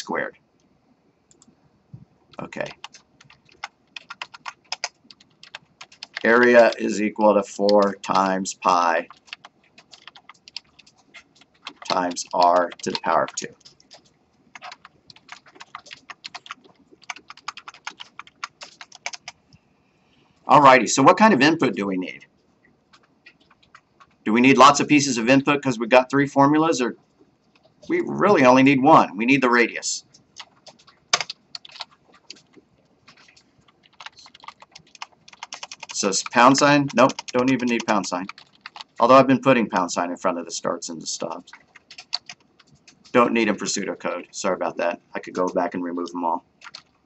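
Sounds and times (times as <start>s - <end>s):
typing on computer keyboard: 2.3s - 7.0s, 7.6s - 19.4s, 22.9s - 24.2s, 27.5s - 27.9s, 30.1s - 39.0s, 41.2s - 43.6s, 46.6s - 47.0s.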